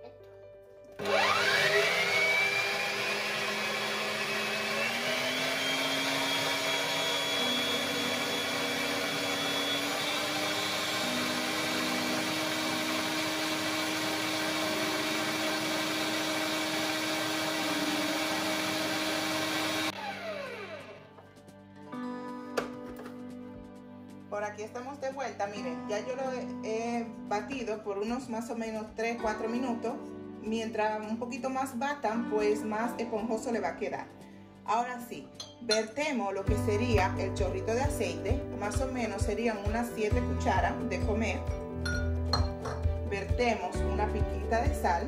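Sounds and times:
stand mixer motor whining: 1.0 - 21.0.

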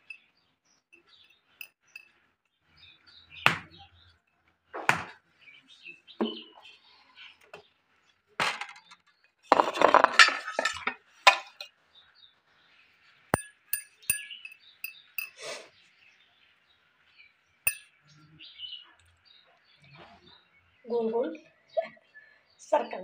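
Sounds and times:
kitchenware clinking and knocking: 9.5 - 11.7, 13.4 - 15.4, 17.7 - 17.9
kitchenware rattling: 9.5 - 11.7.

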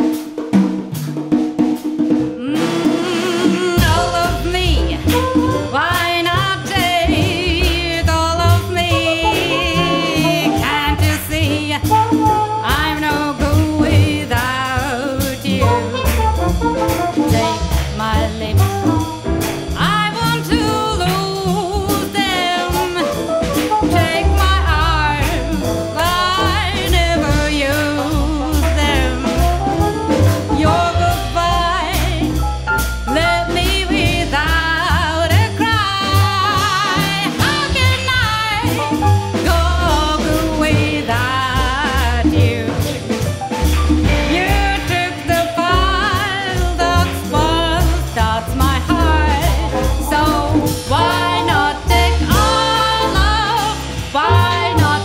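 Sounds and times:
congas: 0.0 - 55.0
double bass: 0.0 - 55.0
drums: 0.0 - 55.0
woman singing jazz: 2.3 - 55.0.

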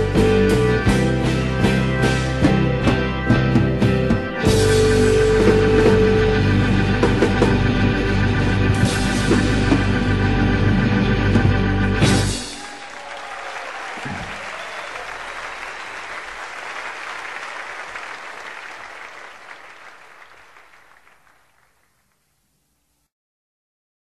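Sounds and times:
audience applause: 12.3 - 22.1.

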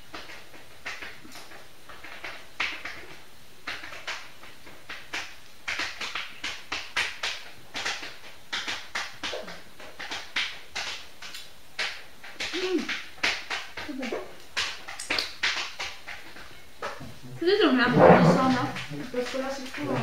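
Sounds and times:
lip smacks: 6.1 - 17.0.

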